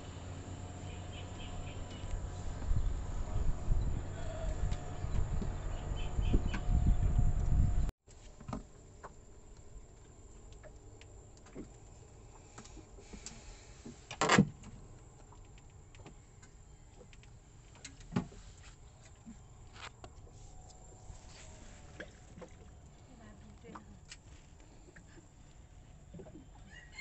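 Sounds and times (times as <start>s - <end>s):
light clicks and knocks in boat: 8.2s - 20.8s, 21.9s - 26.7s.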